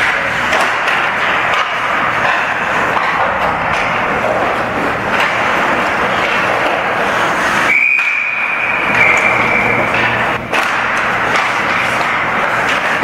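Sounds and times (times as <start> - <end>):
ice rink noise: 0.0 - 13.0
referee's whistle long blast: 7.7 - 9.8.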